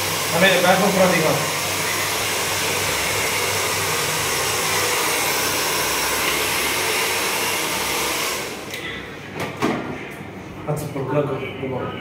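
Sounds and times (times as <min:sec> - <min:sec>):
hair dryer running: 0:00.0 - 0:08.9.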